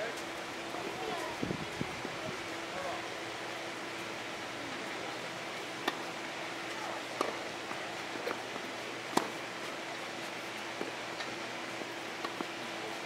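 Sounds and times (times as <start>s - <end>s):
tennis balls struck: 9.1s - 9.4s.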